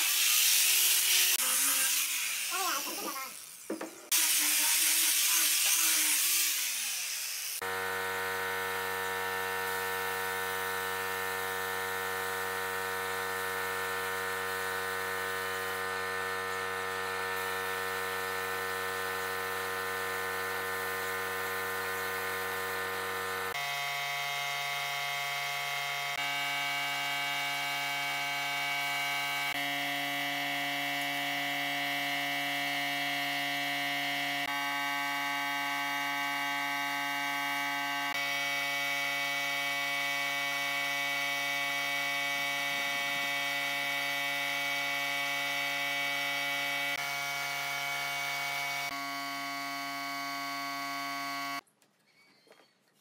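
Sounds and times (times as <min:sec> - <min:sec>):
air spray gun hissing: 0:00.0 - 0:07.6
angle grinder sanding wood: 0:00.0 - 0:51.6
steady buzzing hum: 0:07.6 - 0:51.6.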